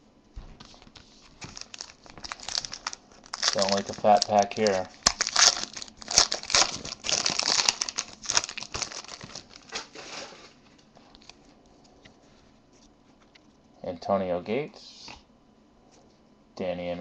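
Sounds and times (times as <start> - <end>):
foil wrapper crinkling: 0.6 - 11.6.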